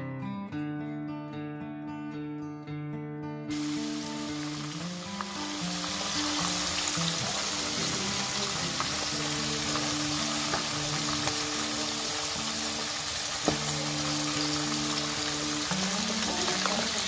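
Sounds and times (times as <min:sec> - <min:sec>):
background music: 0:03.5 - 0:17.0
fish sizzling in hot oil: 0:03.5 - 0:17.0.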